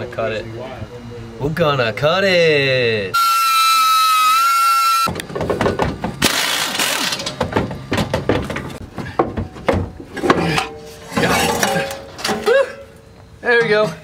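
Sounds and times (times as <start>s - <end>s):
metal clanking and scraping: 5.3s - 12.8s.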